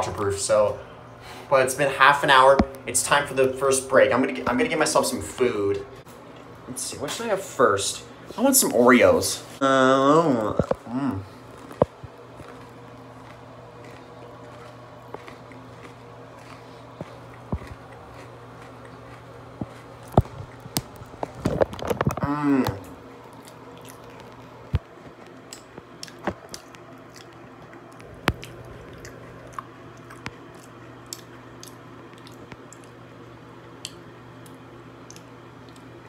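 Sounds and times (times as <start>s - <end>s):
steady low hum: 0.0s - 36.0s
voice humming: 9.6s - 11.5s, 22.1s - 23.0s
chewing cookies: 10.5s - 36.0s.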